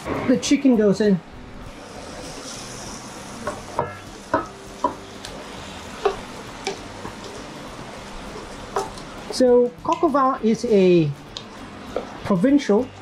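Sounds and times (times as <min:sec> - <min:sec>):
frying sizzle: 0:00.0 - 0:13.0
pan knocking on pot: 0:03.4 - 0:05.1, 0:06.0 - 0:07.4, 0:08.7 - 0:09.0.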